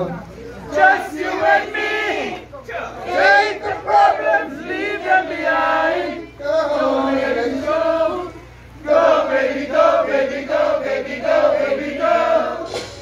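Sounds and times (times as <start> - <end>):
group singing in chorus: 0.6 - 13.0.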